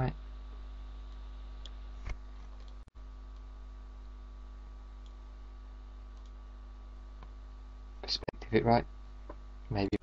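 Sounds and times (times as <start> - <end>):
mains hum: 0.0 - 10.0
faint mouse clicks: 1.1 - 3.5, 5.0 - 5.2, 6.1 - 6.4.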